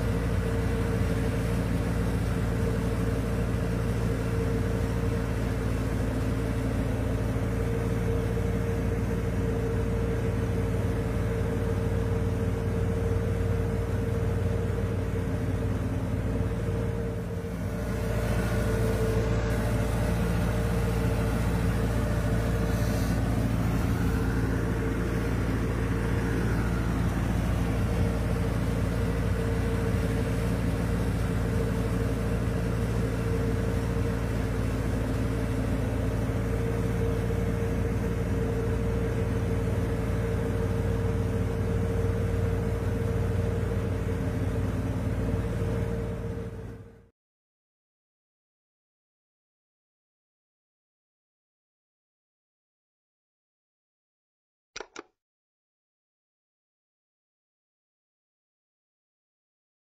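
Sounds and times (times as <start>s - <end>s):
tractor diesel engine running: 0.0s - 47.1s.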